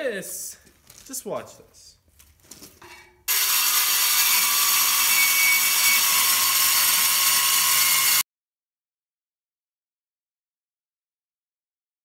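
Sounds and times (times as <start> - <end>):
circular saw cutting steel: 3.3 - 8.2.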